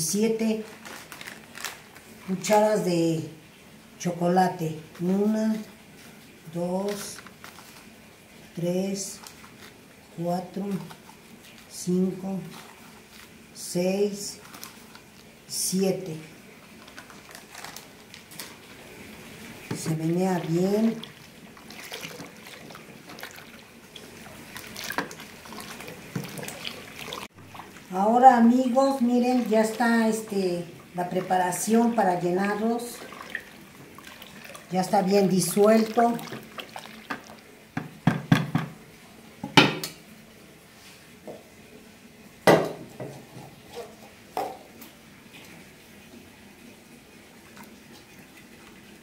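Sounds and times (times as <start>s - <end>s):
liquid sloshing in bucket: 4.9s - 13.5s, 14.2s - 15.5s, 16.6s - 38.0s
spoon knocking plastic bucket: 37.8s - 38.8s.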